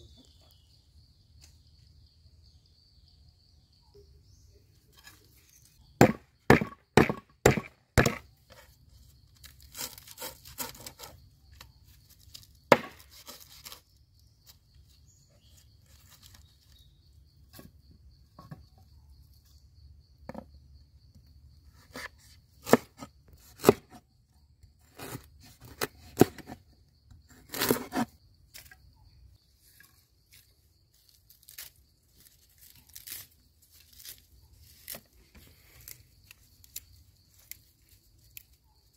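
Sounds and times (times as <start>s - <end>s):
knife chopping on wooden board: 6.0s - 8.2s
herbs rustling and tearing: 30.3s - 38.6s.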